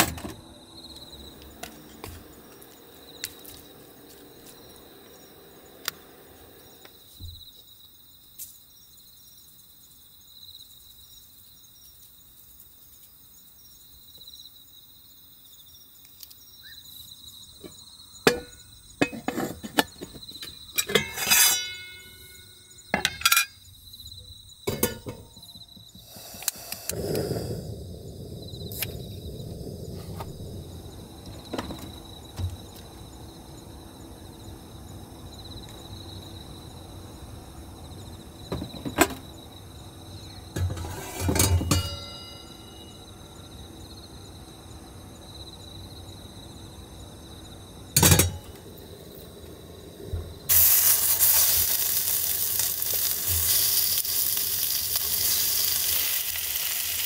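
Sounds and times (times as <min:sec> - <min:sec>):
gas burner rushing: 0:00.0 - 0:07.3, 0:25.9 - 0:33.1, 0:40.5 - 0:42.3, 0:47.9 - 0:57.0
crickets chirping: 0:00.0 - 0:57.0
cookware clinking: 0:18.3 - 0:20.0, 0:20.8 - 0:23.6, 0:24.7 - 0:25.4, 0:40.6 - 0:42.9, 0:48.0 - 0:48.6.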